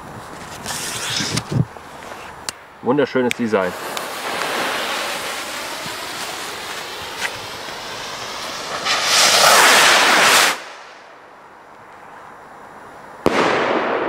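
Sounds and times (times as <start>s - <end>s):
rocket fuses fizzing: 3.3s - 11.0s
rockets launching whoosh: 3.6s - 11.0s, 13.2s - 14.0s.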